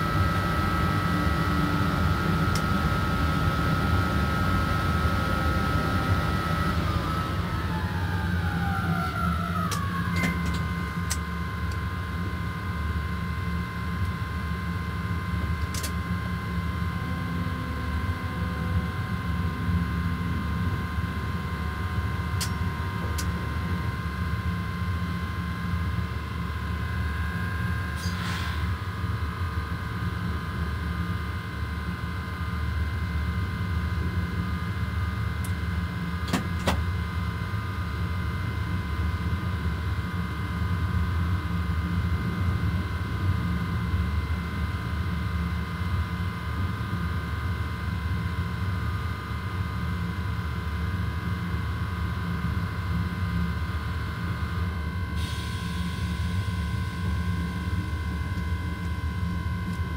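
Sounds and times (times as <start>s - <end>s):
locomotive running gear rumble: 0.0s - 11.8s
steady whining tones: 0.0s - 13.2s, 15.1s - 29.2s.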